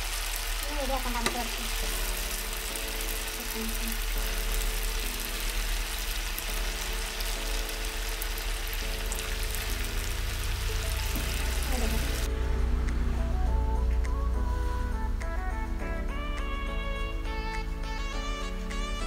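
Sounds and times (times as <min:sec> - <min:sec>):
food deep-frying in oil: 0:00.0 - 0:12.3
soft background music: 0:00.0 - 0:19.0.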